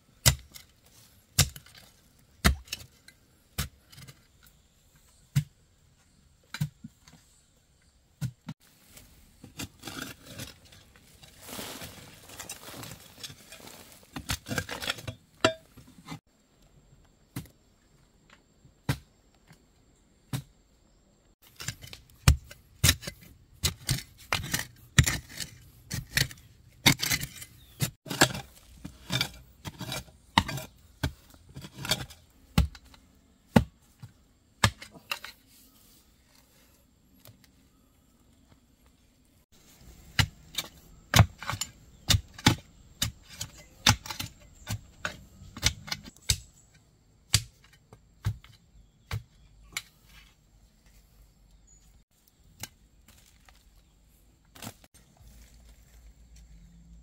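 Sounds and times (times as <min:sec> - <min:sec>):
hoe striking stony soil: 0:00.2 - 0:04.3, 0:21.4 - 0:35.4, 0:39.5 - 0:50.1.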